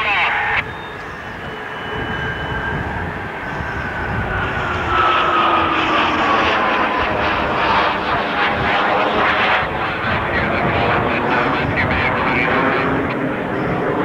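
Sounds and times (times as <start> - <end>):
jet engines running: 0.0 - 14.0.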